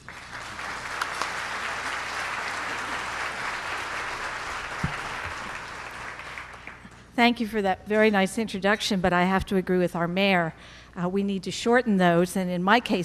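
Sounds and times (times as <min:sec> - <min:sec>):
audience applauding: 0:00.0 - 0:07.0.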